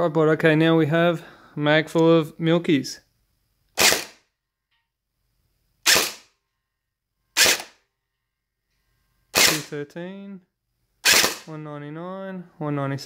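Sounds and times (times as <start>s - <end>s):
gel blaster shots popping: 3.8s - 4.2s, 5.8s - 6.3s, 7.4s - 7.8s, 9.4s - 9.8s, 11.0s - 11.5s.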